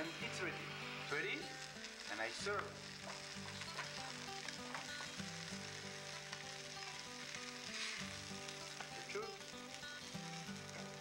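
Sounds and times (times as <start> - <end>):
chicken sizzling in frying pan: 0.0 - 11.0.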